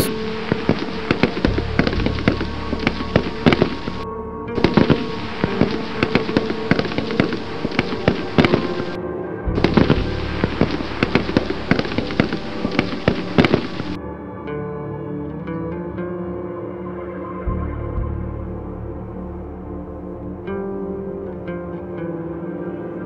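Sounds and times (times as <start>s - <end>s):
background music: 0.0s - 23.0s.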